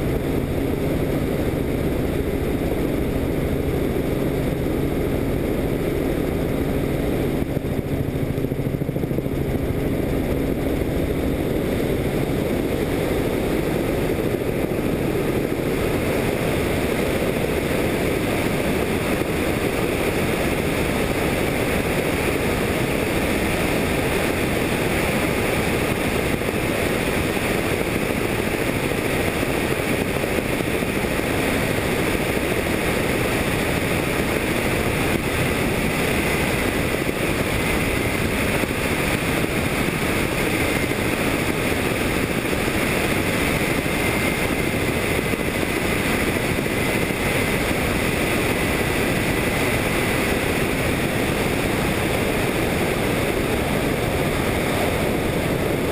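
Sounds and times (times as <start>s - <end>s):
helicopter engine and rotor noise: 0.0s - 55.9s.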